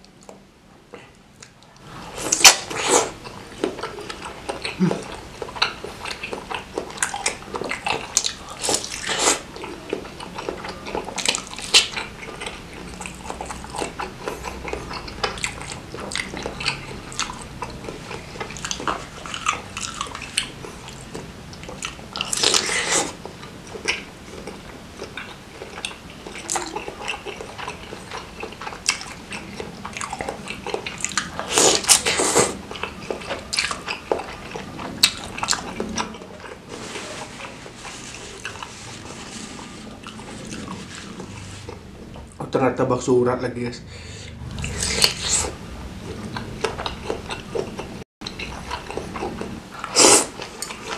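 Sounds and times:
biting and wet chewing: 0.0s - 42.4s, 44.3s - 50.9s
slurping noodles in broth: 8.6s - 9.5s, 22.5s - 23.2s, 31.4s - 32.6s, 49.8s - 50.4s.

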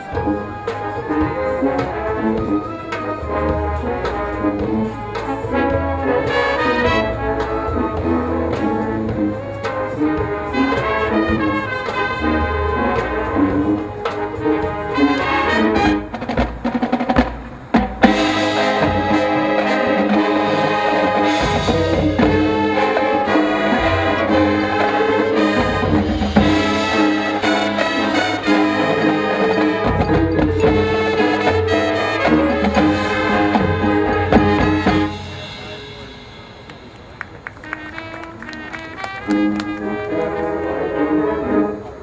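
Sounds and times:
marching band playing: 0.0s - 42.0s.

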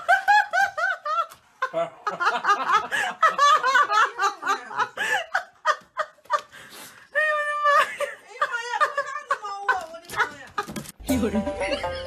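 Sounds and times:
person laughing and giggling: 7.8s - 12.0s.

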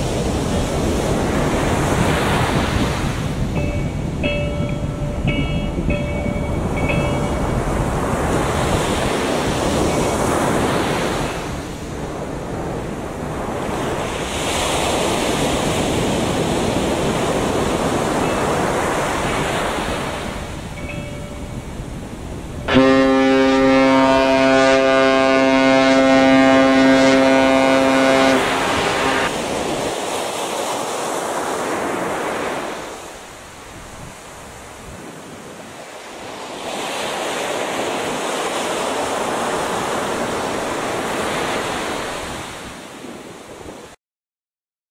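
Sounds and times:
sea surf washing: 0.0s - 44.0s
ship's foghorn blast: 22.7s - 29.3s.

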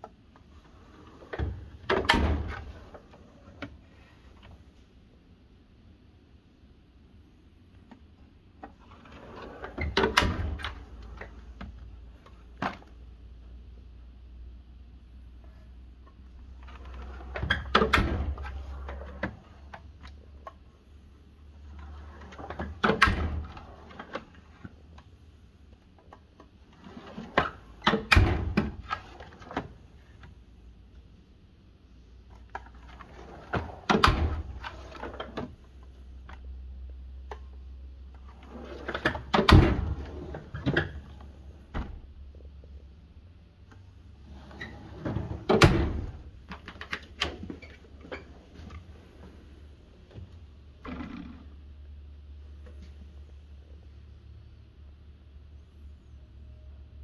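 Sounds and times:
steel drawers rolling on slides: 0.5s - 4.2s, 8.8s - 11.5s, 16.6s - 19.8s, 21.6s - 24.7s, 26.7s - 30.2s, 32.6s - 35.6s, 38.2s - 41.7s, 44.2s - 49.6s.

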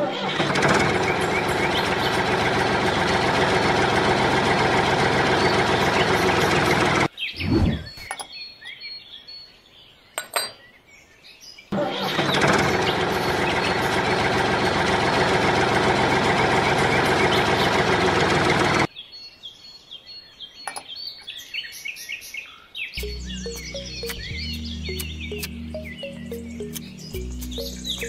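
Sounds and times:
engine running: 0.0s - 7.1s, 11.8s - 18.9s, 23.0s - 28.0s
birds chirping faintly: 5.3s - 14.2s, 18.8s - 28.0s.

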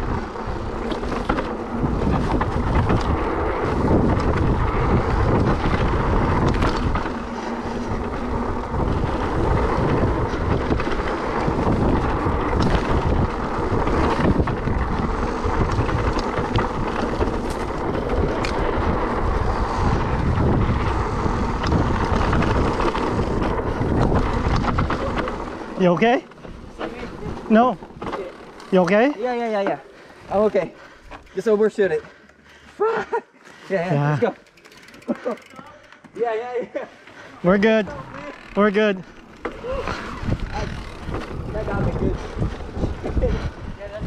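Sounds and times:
wind buffeting microphone: 0.0s - 25.8s, 37.7s - 44.0s
bike knocks and rattles: 0.0s - 29.8s, 34.4s - 36.2s, 37.9s - 43.4s
bike tyres rumbling on dirt: 0.0s - 32.2s, 37.4s - 44.0s.

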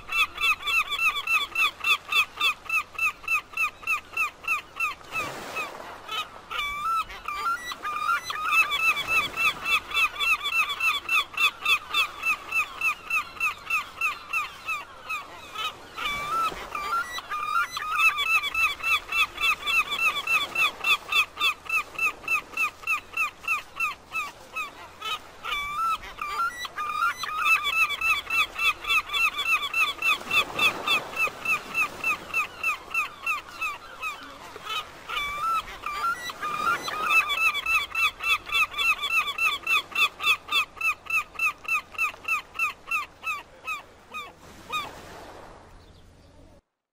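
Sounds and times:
gulls calling: 0.0s - 45.1s.

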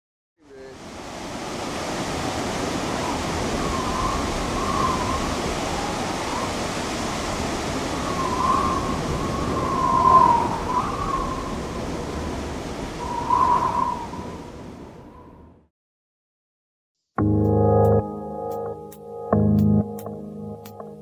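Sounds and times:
river water rushing: 0.7s - 3.9s
wavering whistle-like calls: 3.5s - 6.5s, 8.0s - 11.6s, 13.0s - 14.3s.

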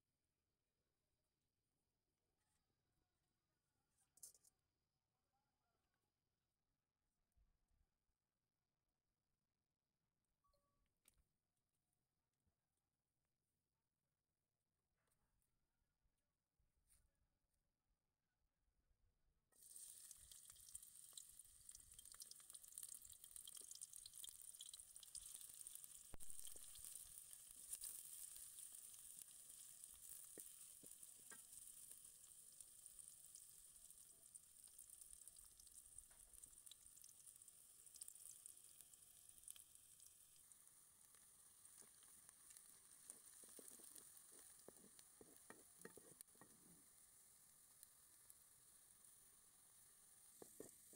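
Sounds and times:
onions sizzling in oil: 19.6s - 50.9s.

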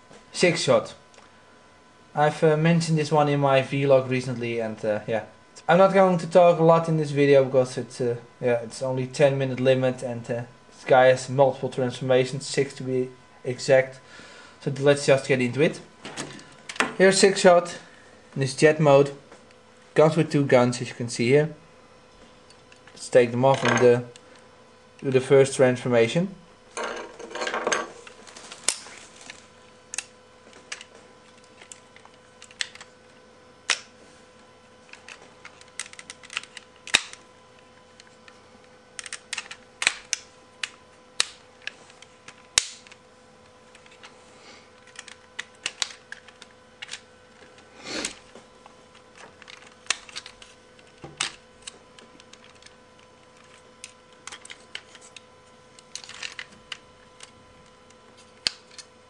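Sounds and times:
plastic toy parts clicking: 39.0s - 40.2s, 44.8s - 47.0s, 55.9s - 56.5s.

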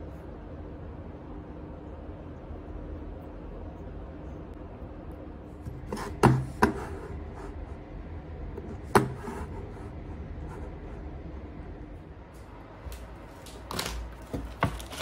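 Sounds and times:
sharp knocks on hard surface: 8.9s - 9.3s.

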